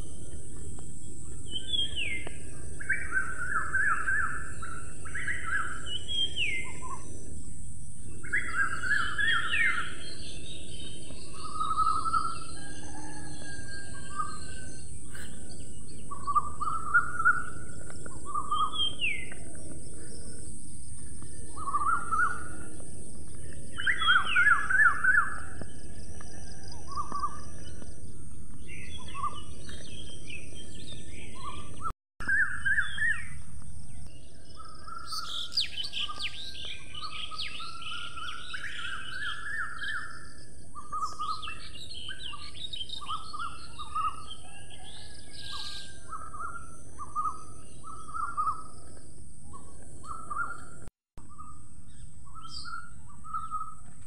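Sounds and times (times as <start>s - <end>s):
birds chirping and trilling: 0.0s - 54.0s.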